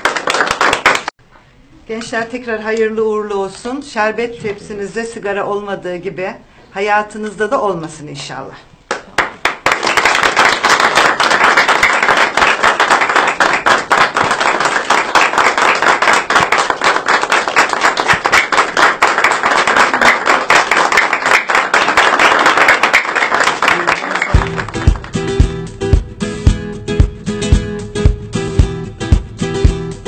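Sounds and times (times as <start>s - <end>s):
people clapping: 0.0s - 1.2s, 8.9s - 25.6s.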